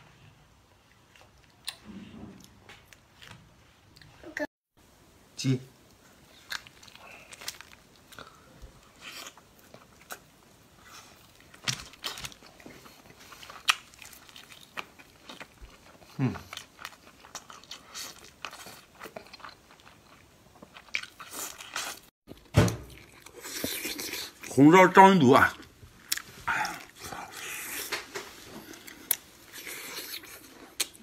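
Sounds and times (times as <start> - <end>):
chewing and biting: 9.0 - 22.0, 26.0 - 31.0.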